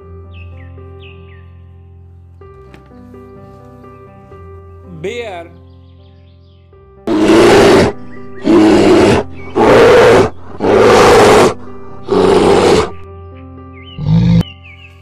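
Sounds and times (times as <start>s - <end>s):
background music: 0.0s - 15.0s
bear roaring: 7.1s - 13.0s, 14.0s - 14.4s.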